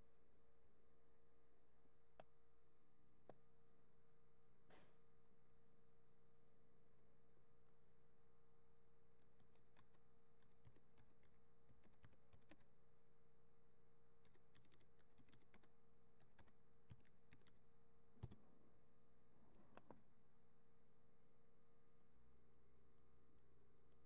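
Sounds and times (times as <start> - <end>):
faint steady hum: 0.0 - 24.0
keyboard typing clicks: 9.2 - 12.7, 14.2 - 17.6, 18.2 - 18.4.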